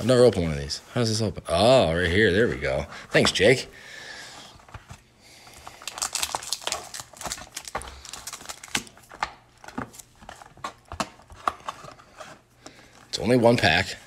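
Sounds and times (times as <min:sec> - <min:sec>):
cardboard and foil rustling: 0:04.6 - 0:14.0.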